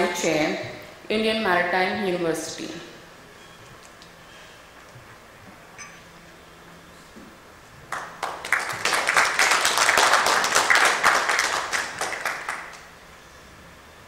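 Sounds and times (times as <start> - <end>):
audience applauding: 7.9 - 12.9.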